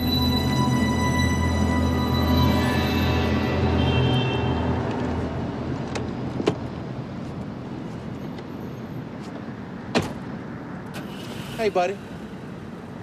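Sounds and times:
low synth film score: 0.0 - 6.4
passing car traffic: 0.0 - 13.0.

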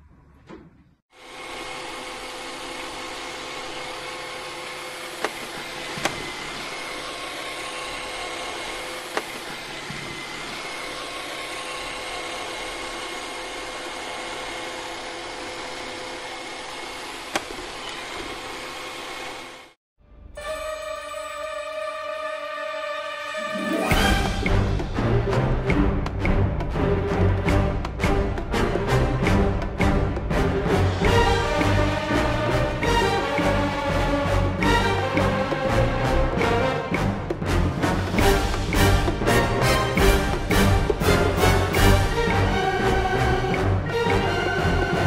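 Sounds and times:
robot vacuum cleaner running: 1.1 - 19.8.

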